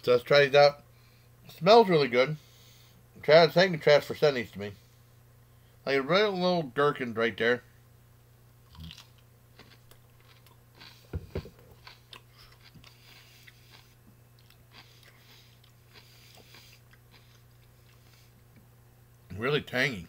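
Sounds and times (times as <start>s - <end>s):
crunchy gherkin being chewed: 8.6s - 18.6s.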